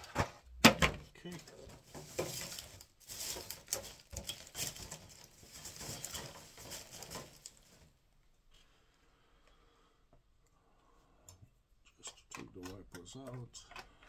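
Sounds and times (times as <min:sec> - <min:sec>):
plastic packaging crinkling: 0:01.3 - 0:07.9.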